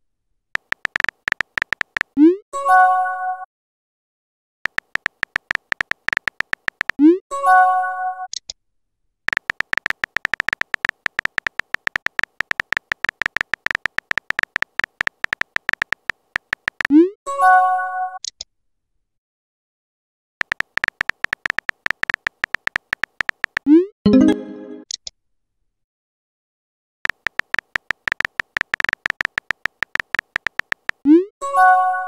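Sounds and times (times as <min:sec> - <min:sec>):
phone keyboard tapping: 0:00.6 - 0:02.2, 0:04.7 - 0:07.0, 0:09.3 - 0:16.9, 0:20.4 - 0:23.7, 0:27.1 - 0:31.0
messaging chime: 0:24.1 - 0:24.8.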